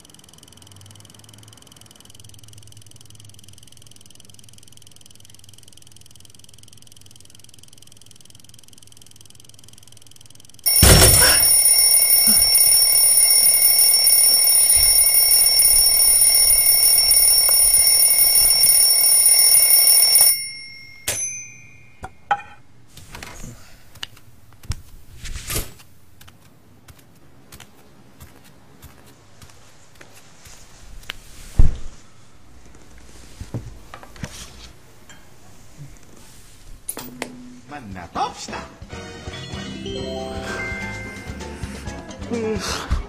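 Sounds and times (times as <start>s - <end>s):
alarm clock ringing: 0.0s - 22.2s, 39.8s - 41.7s.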